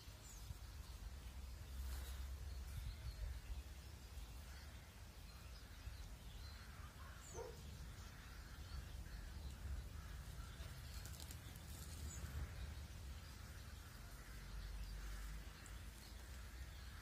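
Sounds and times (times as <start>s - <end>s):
soft rustle: 9.6s - 12.6s.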